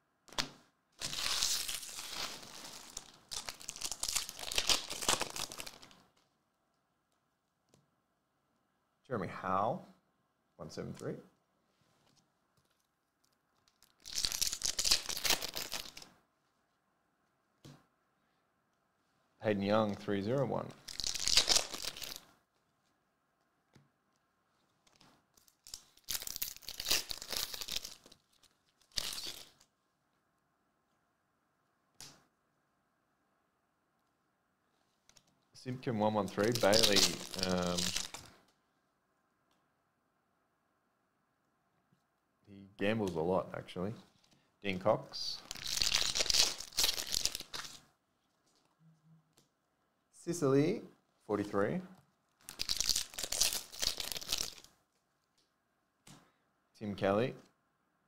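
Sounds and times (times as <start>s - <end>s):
foil wrapper crinkling and tearing: 1.0s - 6.0s, 13.6s - 16.0s, 20.8s - 22.2s, 25.4s - 29.7s, 36.3s - 38.3s, 45.4s - 47.8s, 52.4s - 54.7s.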